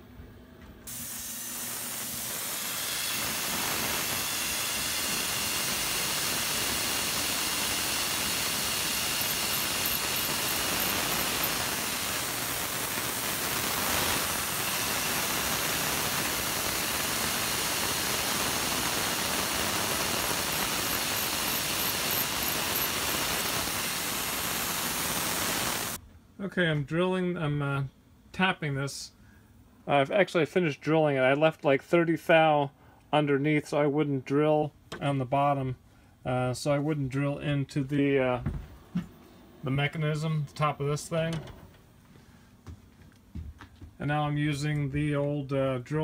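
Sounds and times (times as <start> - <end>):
coolant spray hissing: 0.9 - 26.0
mill drilling holes in aluminum: 0.9 - 26.0.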